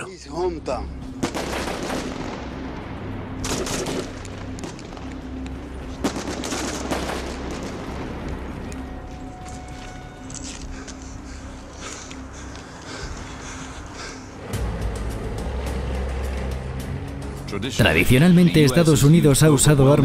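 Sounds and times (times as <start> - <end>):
steady low hum: 0.8 - 17.5
rifle and machine-gun fire: 1.2 - 2.3, 3.4 - 4.2, 6.0 - 7.8.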